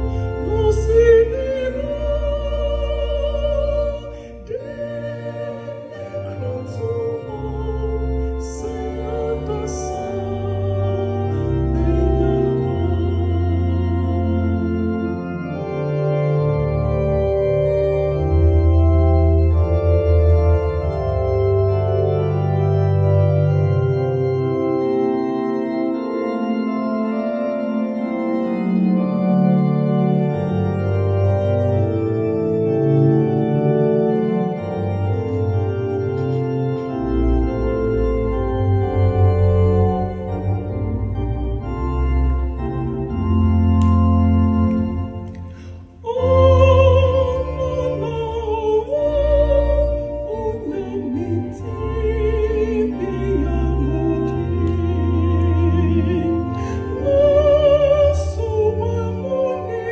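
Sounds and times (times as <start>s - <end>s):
organ playing slow chords: 0.0s - 59.9s.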